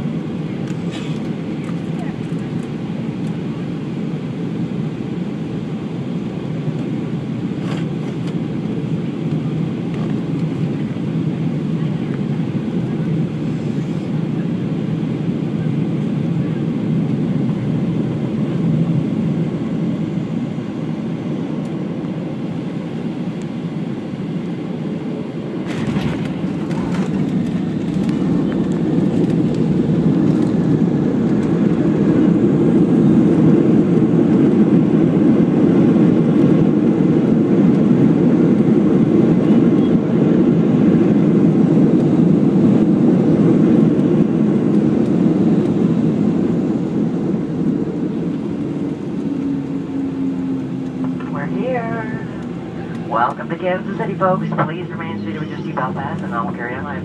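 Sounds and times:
jet engines and airflow rushing: 0:00.0 - 0:57.0
reverse thrust roar: 0:45.9 - 0:57.0.

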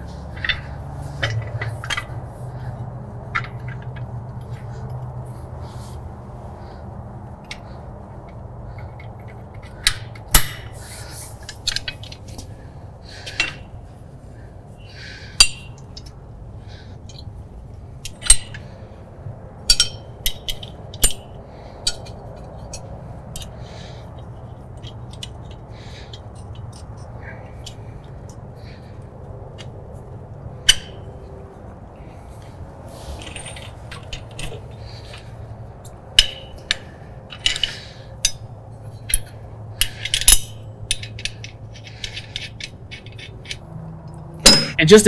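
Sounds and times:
low steady hum: 0:00.0 - 0:45.0
metallic clinks of tools on steel: 0:44.4 - 0:45.0.

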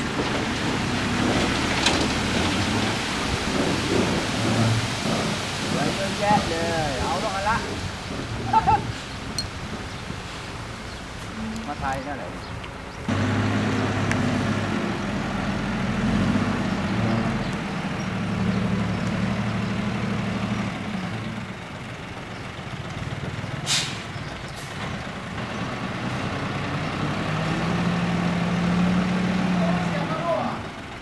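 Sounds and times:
diesel truck engine running: 0:12.8 - 0:31.0
air brakes hissing: 0:23.6 - 0:24.8.

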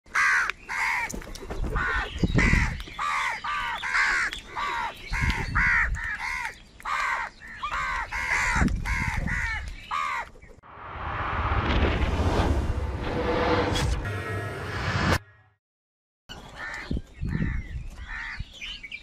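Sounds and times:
crows cawing: 0:00.1 - 0:01.2, 0:01.8 - 0:10.3, 0:16.5 - 0:18.6
low rumbles: 0:10.7 - 0:15.2.

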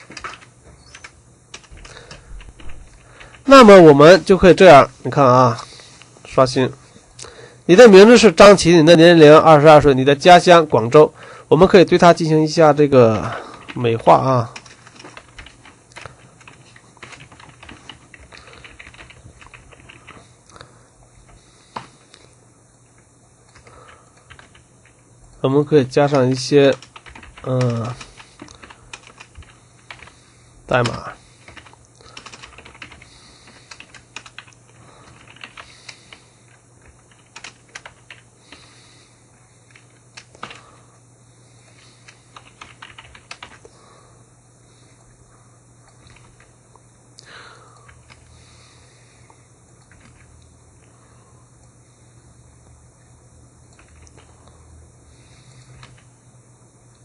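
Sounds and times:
keyboard typing clicks: 0:00.0 - 0:03.4, 0:30.8 - 0:38.2, 0:42.0 - 0:43.6, 0:49.8 - 0:50.3, 0:53.7 - 0:54.3
faint steady hum: 0:00.0 - 0:57.0.

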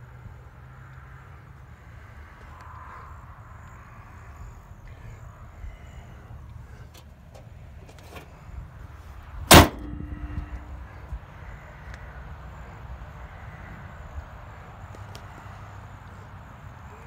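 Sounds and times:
car hood slamming shut: 0:09.5 - 0:10.4.

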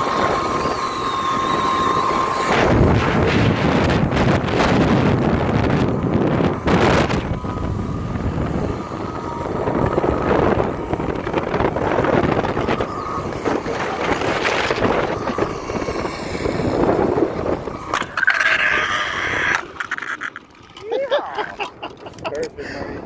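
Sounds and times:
wind rushing over microphone: 0:00.0 - 0:20.4, 0:21.4 - 0:23.0
trolley running along cable: 0:00.0 - 0:22.5
faint steady whine: 0:00.0 - 0:22.8.

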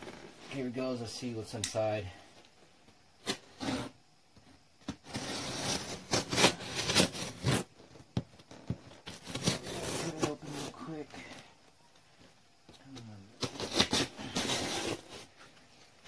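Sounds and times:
knife slicing packing tape: 0:05.0 - 0:07.7, 0:09.1 - 0:10.3, 0:13.4 - 0:15.3.

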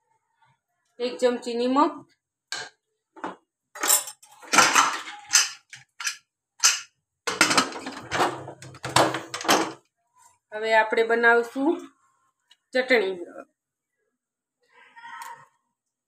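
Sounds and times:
spoon knocking and scraping a pot: 0:04.5 - 0:09.7.

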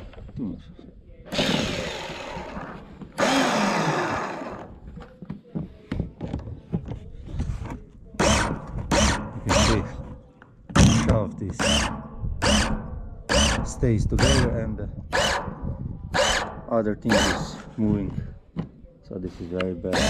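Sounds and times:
small electric motor whirring: 0:11.6 - 0:15.6, 0:16.2 - 0:17.4.

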